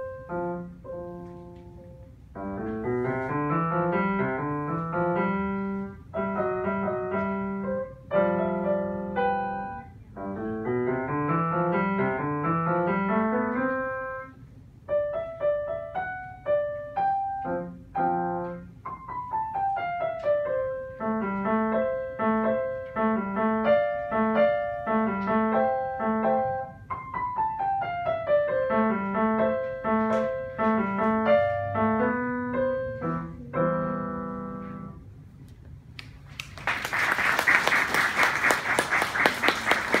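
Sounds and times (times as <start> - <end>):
jazzy piano solo: 0.0 - 35.1
audience applauding: 36.3 - 40.0.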